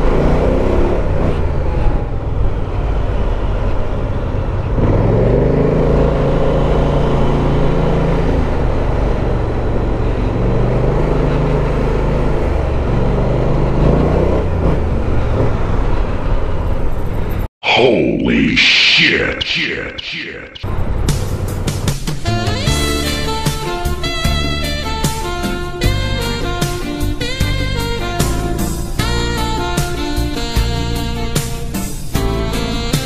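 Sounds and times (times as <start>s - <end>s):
wind and road noise: 0.0s - 17.5s
scooter engine accelerating: 4.8s - 17.0s.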